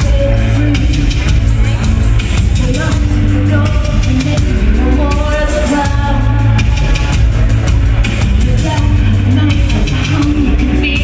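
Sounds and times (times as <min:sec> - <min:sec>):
woman singing into a microphone: 0:00.0 - 0:07.3, 0:08.2 - 0:11.0
heavy bass: 0:00.0 - 0:11.0
keyboards: 0:00.0 - 0:11.0.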